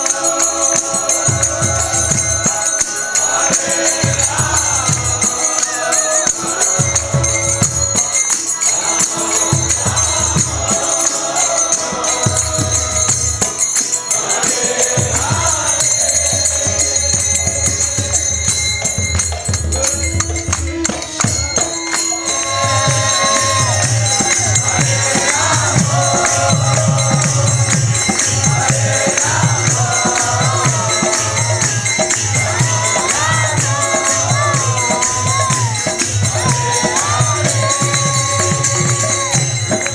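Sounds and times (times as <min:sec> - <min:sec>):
hand drums: 0:00.0 - 0:39.9
small hand cymbals jingling: 0:00.0 - 0:39.9
group of voices chanting: 0:22.0 - 0:39.9.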